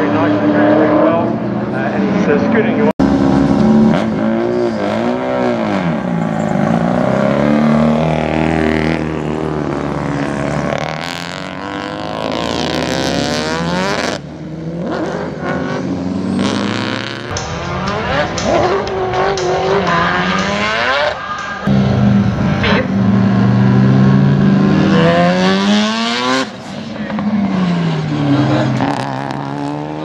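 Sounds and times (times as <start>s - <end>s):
car accelerating: 0.0s - 30.0s
racing car engines revving: 0.0s - 30.0s.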